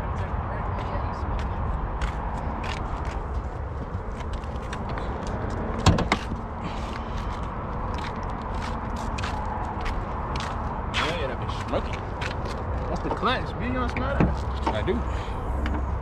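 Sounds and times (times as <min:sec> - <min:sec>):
car door shutting: 0:05.8 - 0:06.4.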